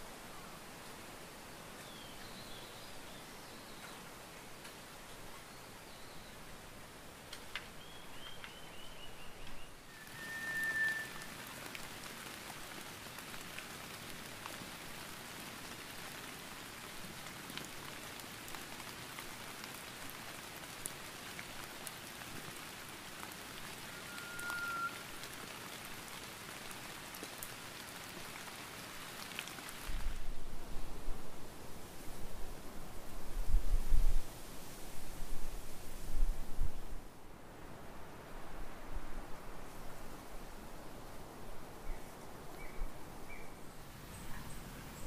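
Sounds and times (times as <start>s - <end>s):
rain falling: 0.0s - 45.0s
bird calling: 7.8s - 11.5s, 23.8s - 25.0s
bird whistles: 8.2s - 11.3s, 23.9s - 25.0s.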